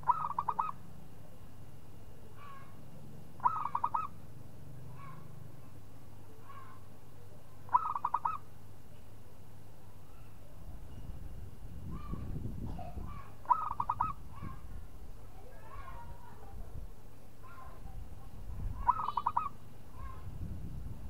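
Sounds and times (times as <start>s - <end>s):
dove cooing: 0.0s - 0.8s, 3.4s - 4.2s, 7.7s - 8.4s, 13.2s - 14.6s, 18.8s - 19.6s
faint short bird calls: 0.0s - 0.8s, 2.4s - 2.8s, 3.4s - 4.2s, 6.4s - 6.9s, 7.7s - 8.5s, 11.9s - 14.7s, 18.8s - 20.3s.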